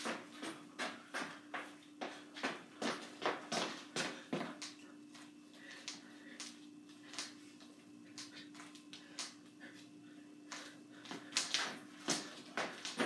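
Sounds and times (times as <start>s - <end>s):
steady low hum: 0.0s - 13.0s
footsteps stomping on hardwood floor: 11.1s - 13.0s.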